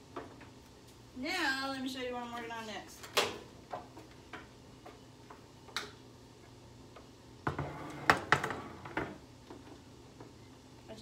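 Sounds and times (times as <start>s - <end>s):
kitchen items knocking and clattering: 7.4s - 9.2s.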